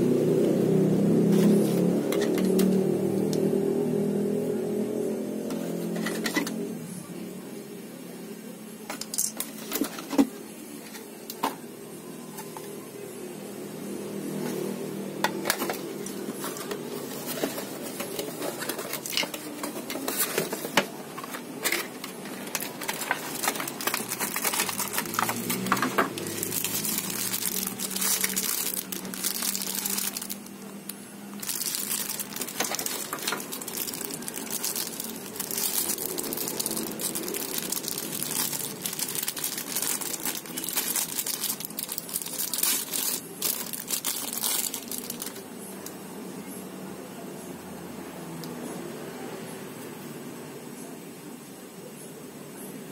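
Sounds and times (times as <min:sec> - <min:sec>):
plastic bags crinkling: 0:15.2 - 0:45.4.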